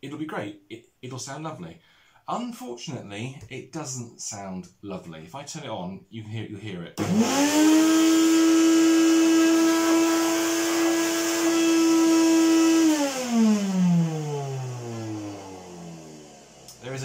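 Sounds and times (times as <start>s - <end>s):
vacuum cleaner motor roaring: 7.0s - 17.0s.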